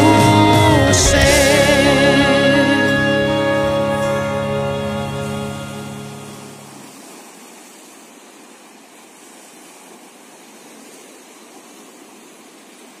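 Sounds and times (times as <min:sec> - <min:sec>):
music held notes: 0:00.0 - 0:06.9.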